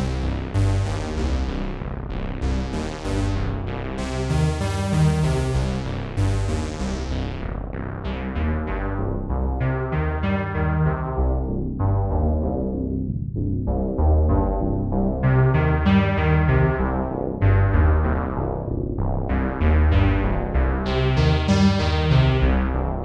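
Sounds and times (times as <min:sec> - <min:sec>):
held low synth bass: 0:00.0 - 0:23.0
synthesizer chords and notes: 0:00.0 - 0:23.0.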